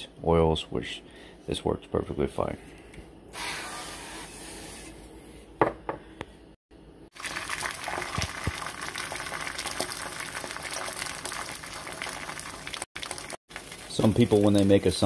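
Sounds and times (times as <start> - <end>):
egg sizzling in oil: 7.1 - 15.0.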